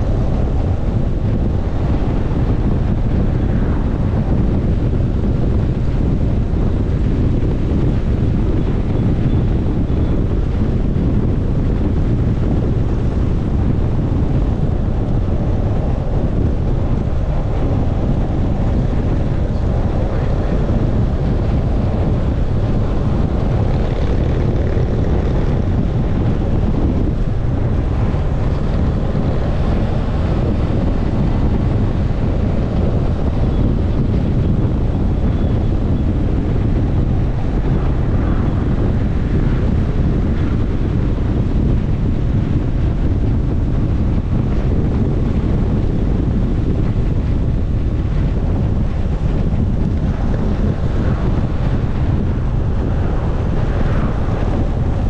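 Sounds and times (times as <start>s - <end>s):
wind buffeting microphone: 0.0s - 55.0s
motorcycle engine running: 2.8s - 38.0s.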